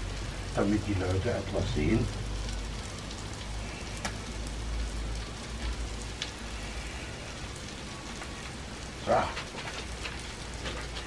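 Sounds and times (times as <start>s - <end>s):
food sizzling on a grill: 0.0s - 11.0s
sharp pops: 4.0s - 4.3s.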